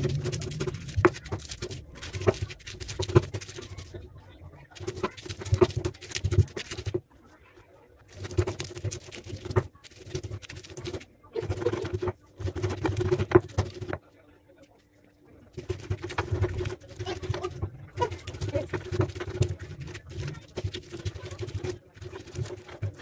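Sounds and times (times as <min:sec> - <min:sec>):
stone pestle grinding in mortar: 0:00.0 - 0:03.6, 0:15.6 - 0:23.0.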